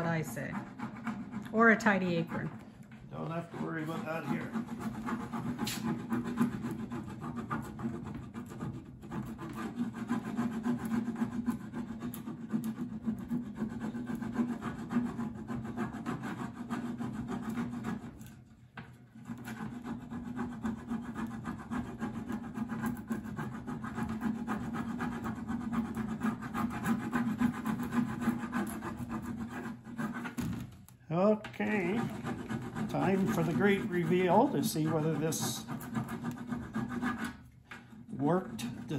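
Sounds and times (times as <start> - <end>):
plastic rubbing against metal: 0.0 - 38.9.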